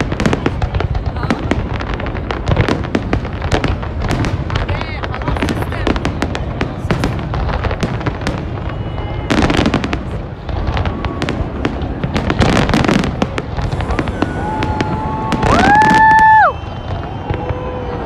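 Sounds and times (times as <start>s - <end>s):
firework bangs and crackling bursts: 0.0s - 18.0s
rising firework whistle: 7.9s - 18.0s.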